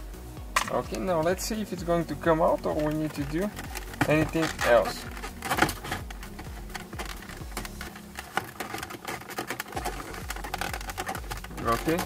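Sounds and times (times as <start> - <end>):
plastic housing creaking and clicking: 1.8 - 12.0.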